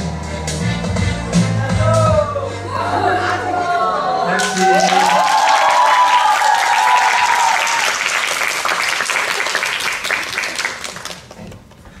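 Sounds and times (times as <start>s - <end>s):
music: 0.0s - 5.4s
audience applauding: 4.3s - 11.6s.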